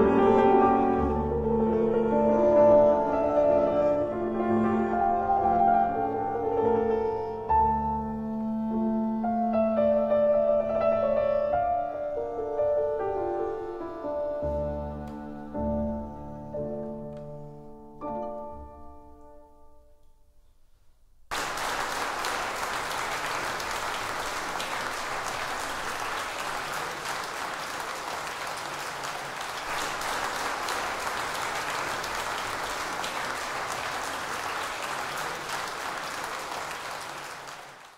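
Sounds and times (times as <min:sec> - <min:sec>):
audience applause: 0:21.3 - 0:37.9.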